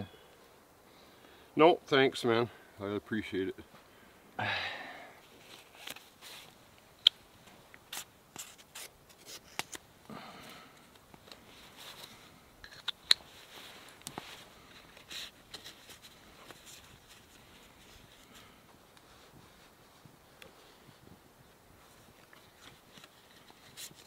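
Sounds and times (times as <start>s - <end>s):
paper and cardboard rustling: 13.3s - 18.4s.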